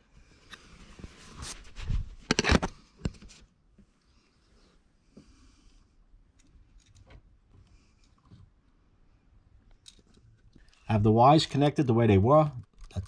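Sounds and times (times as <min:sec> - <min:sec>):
faint breathing: 0:04.0 - 0:06.1.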